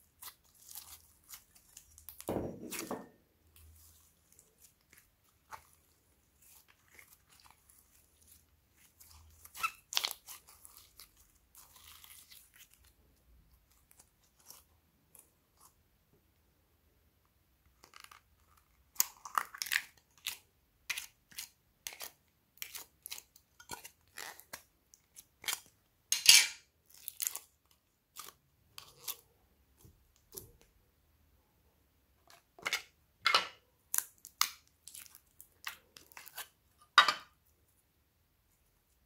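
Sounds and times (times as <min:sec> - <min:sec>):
sticky slime crackles and snaps: 0:33.9 - 0:36.4.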